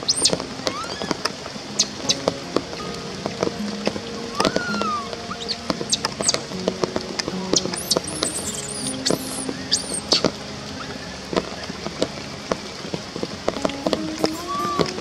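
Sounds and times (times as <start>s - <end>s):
baby monkey squeaking cries: 7.8s - 10.2s.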